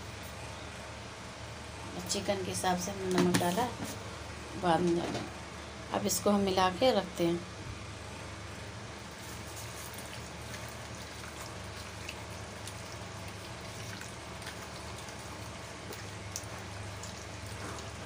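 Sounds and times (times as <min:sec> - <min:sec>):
steady low hum: 0:00.0 - 0:18.0
hands squelching raw chicken: 0:09.2 - 0:18.0.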